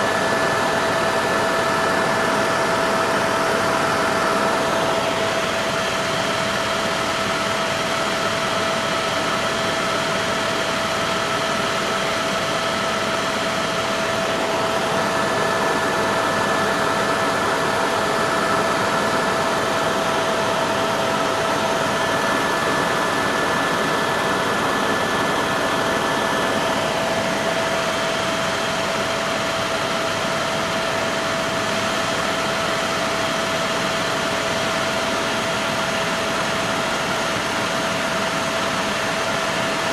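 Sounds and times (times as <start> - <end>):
constant whine: 0.0 - 39.9
helicopter engine and rotor drone: 0.0 - 39.9.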